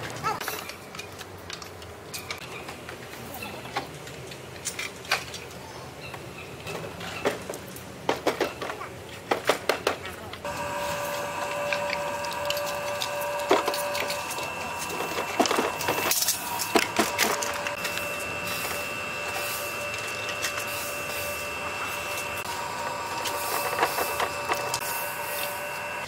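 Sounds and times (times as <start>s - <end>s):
steady multi-tone whine: 10.4s - 26.0s.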